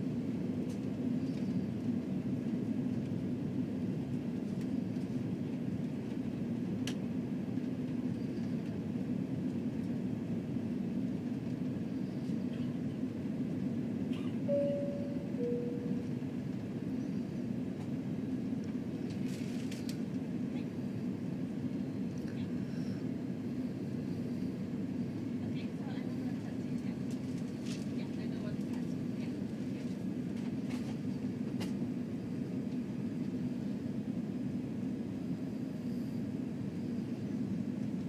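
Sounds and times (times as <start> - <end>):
airliner cabin roar: 0.0 - 38.0
two-tone cabin chime: 14.5 - 16.2.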